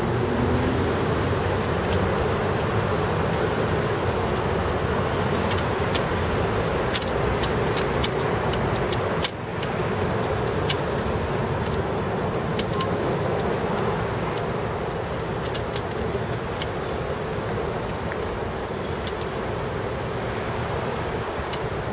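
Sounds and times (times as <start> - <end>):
sharp clicks: 12.5 - 14.5, 15.4 - 16.8.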